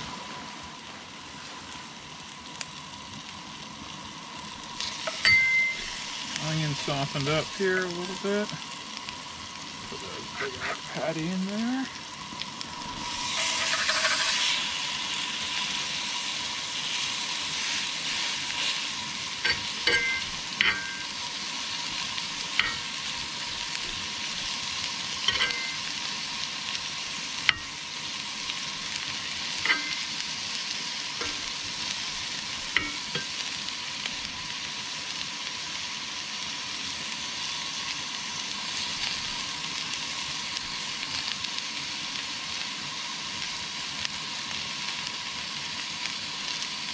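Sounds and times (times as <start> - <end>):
meat sizzling in a skillet: 0.0 - 46.9
metal spatula scraping a pan: 10.2 - 11.0, 13.0 - 14.6, 25.2 - 25.9, 29.6 - 30.1, 31.2 - 31.5.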